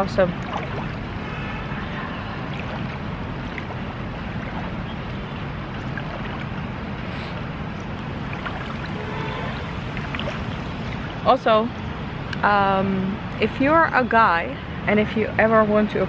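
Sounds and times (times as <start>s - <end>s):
river rushing: 0.0s - 12.2s
wind buffeting microphone: 0.0s - 16.0s.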